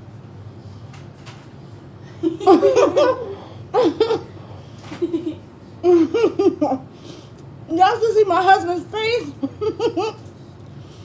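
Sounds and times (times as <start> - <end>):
woman laughing: 2.2 - 4.3, 5.0 - 6.9, 9.2 - 10.2.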